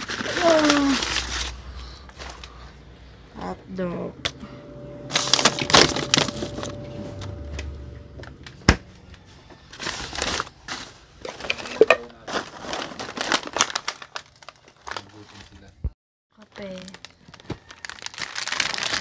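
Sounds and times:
plastic bags rustling: 0.0s - 2.8s, 9.7s - 15.6s, 16.4s - 19.0s.

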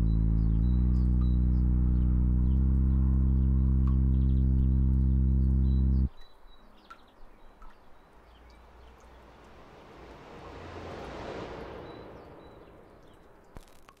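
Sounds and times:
bird chirps: 0.0s - 9.5s
rushing noise: 8.1s - 14.0s.

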